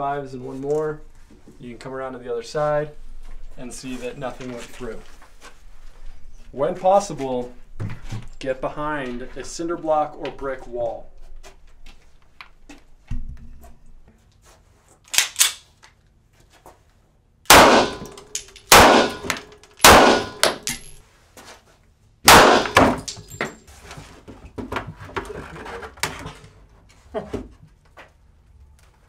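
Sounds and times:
handgun shots: 17.5s - 21.0s, 22.3s - 23.2s.

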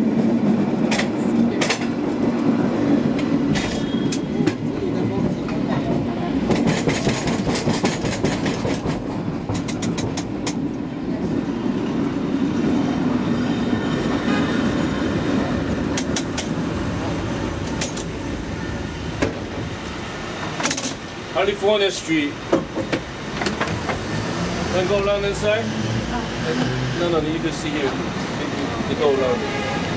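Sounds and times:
cable car clacks and rattles: 0.0s - 12.9s, 13.8s - 18.4s, 20.4s - 24.1s
cable car rumbling: 0.0s - 29.9s.

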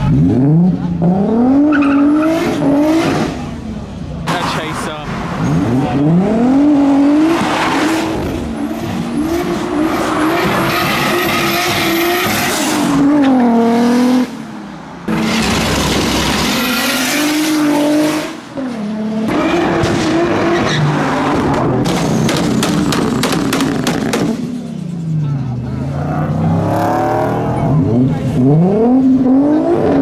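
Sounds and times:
car engine revving hard: 5.4s - 14.4s, 15.1s - 24.5s, 26.0s - 30.0s.

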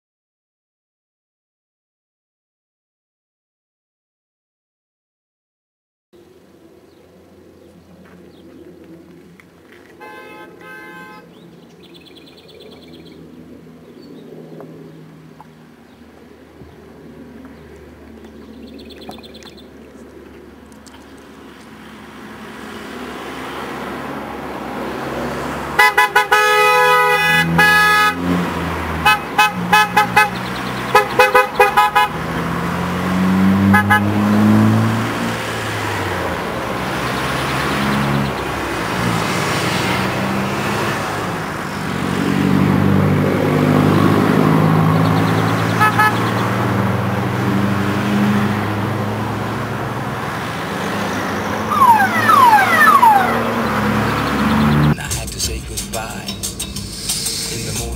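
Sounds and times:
cars passing: 6.2s - 57.9s
car horn blast: 10.0s - 11.3s, 25.7s - 28.3s, 29.0s - 32.2s, 33.6s - 34.3s, 45.7s - 46.4s
short car horn toots: 10.0s - 11.3s, 25.8s - 28.2s, 33.7s - 34.2s, 45.8s - 46.3s
engine revving: 20.8s - 57.9s.

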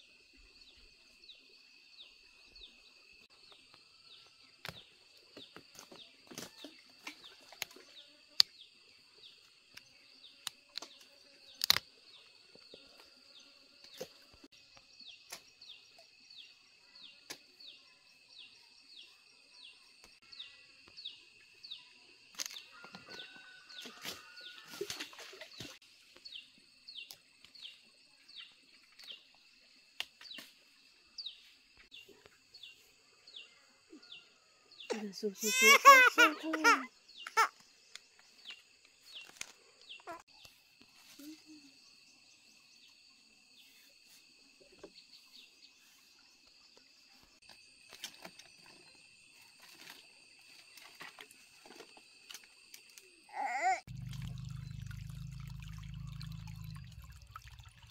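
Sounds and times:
sharp snaps and clicks: 11.6s - 11.9s.

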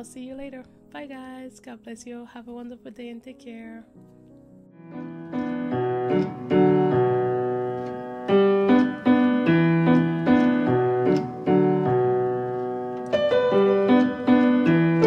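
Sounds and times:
piano melody: 3.3s - 15.0s.

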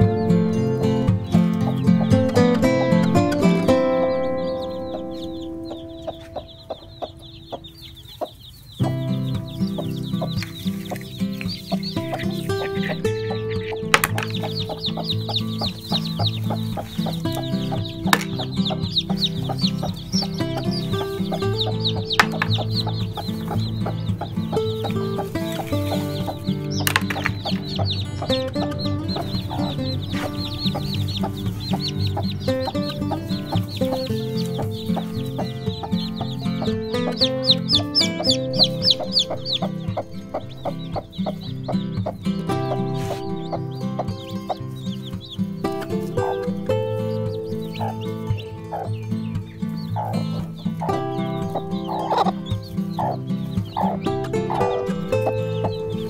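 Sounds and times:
chicks peeping: 0.0s - 56.0s
background music with beat: 8.9s - 41.4s.

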